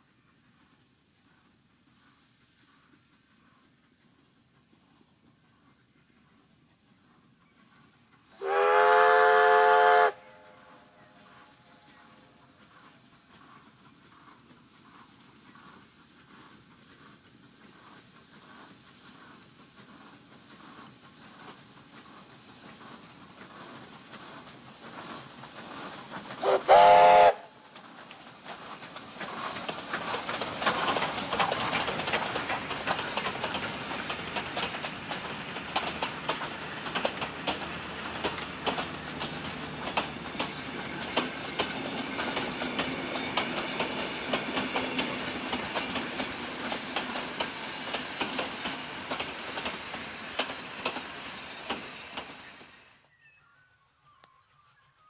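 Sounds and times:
steam locomotive approaching: 0.0 - 55.0
loud train whistle blast: 8.4 - 10.9, 26.4 - 27.7
wheels clicking over rail joints: 27.7 - 52.8.

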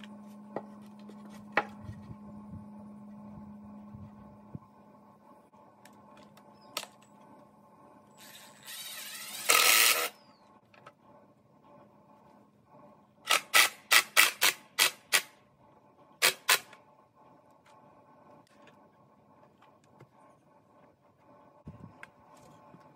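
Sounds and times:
cordless driver whirring: 8.2 - 10.4.

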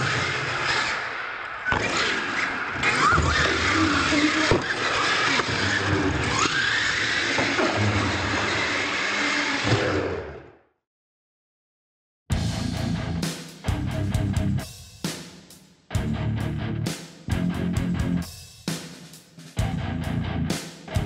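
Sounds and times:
toy truck motors whining: 1.7 - 10.5.

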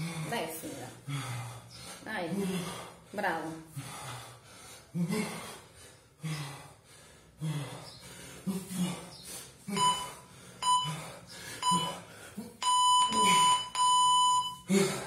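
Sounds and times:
electronic timer beeps: 9.8 - 11.0, 11.6 - 12.0, 12.6 - 14.7.

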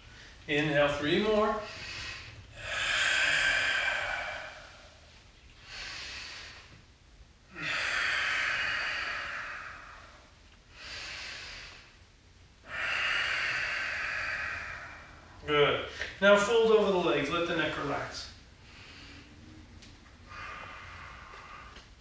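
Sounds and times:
man inhaling: 1.3 - 6.8, 7.5 - 16.2, 18.3 - 19.6, 20.2 - 22.0
man exhaling loudly: 1.7 - 5.0, 7.5 - 10.2, 12.7 - 16.1.

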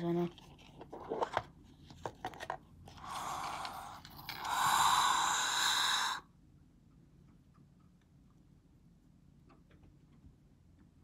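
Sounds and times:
person breathing close to microphone: 3.0 - 6.3.

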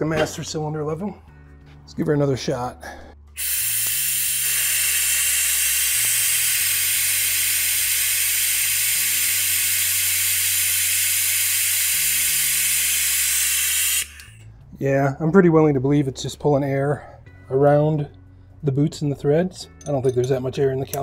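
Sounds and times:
air-powered vacuum bleeder hissing: 3.4 - 14.4.

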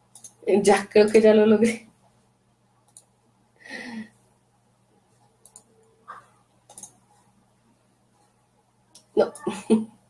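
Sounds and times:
computer clicks: 0.1 - 0.4, 2.8 - 3.2, 5.4 - 7.0.

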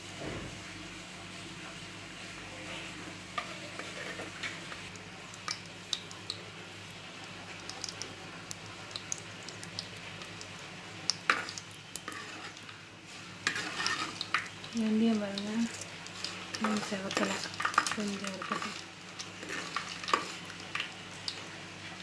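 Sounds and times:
seeds sizzling and popping in oil: 3.3 - 22.0.

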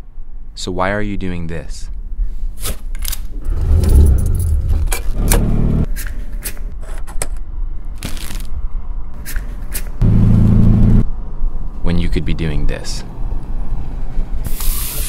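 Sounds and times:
low hum: 3.3 - 5.9, 10.0 - 11.4.

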